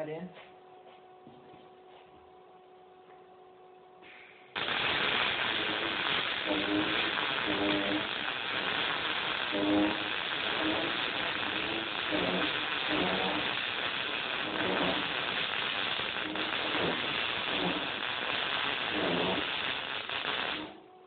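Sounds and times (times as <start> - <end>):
welding arc crackling: 4.6 - 20.9
welding arc popping: 4.6 - 20.9.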